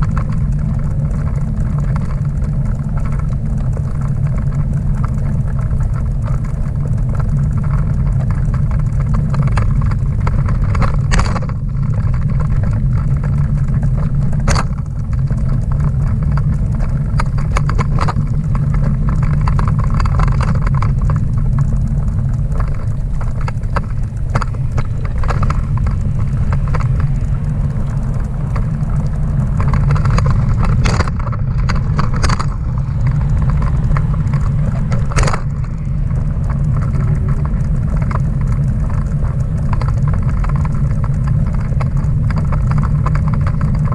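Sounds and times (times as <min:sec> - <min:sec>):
bike trailer wheels rumbling: 0:00.0 - 0:43.9.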